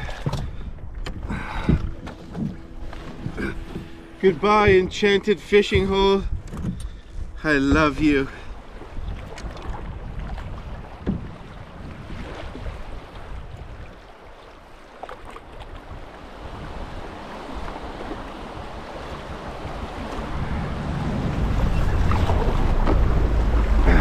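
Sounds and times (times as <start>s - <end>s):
wind buffeting microphone: 0.0s - 14.3s, 15.5s - 24.0s
river water rushing: 14.1s - 24.0s.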